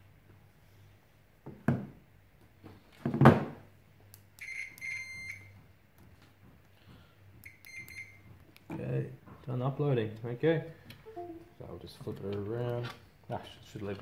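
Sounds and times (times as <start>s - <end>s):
multimeter short beeps: 7.5s - 8.2s.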